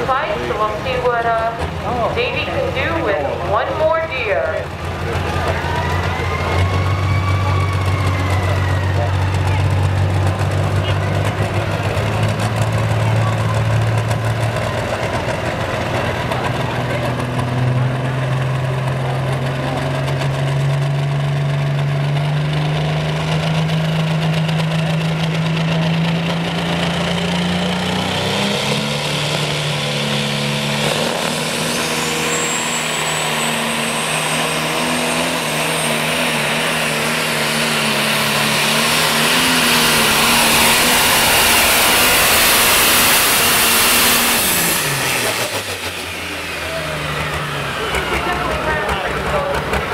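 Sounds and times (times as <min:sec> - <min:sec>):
tractor diesel engine revving: 0:00.0 - 0:49.9
turbo whine: 0:23.7 - 0:49.9.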